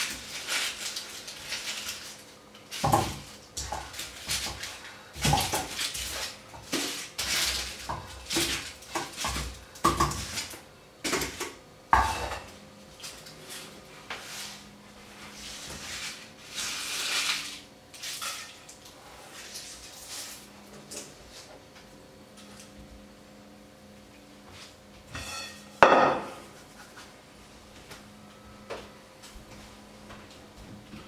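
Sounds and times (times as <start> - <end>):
dry onion skins crackling: 0.0 - 10.6, 15.4 - 20.6.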